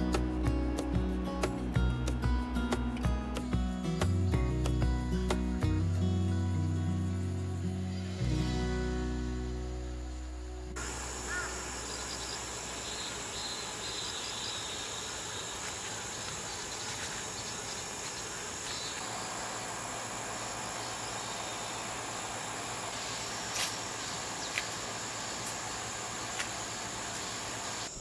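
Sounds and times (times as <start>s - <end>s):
insects trilling: 5.7s - 28.0s.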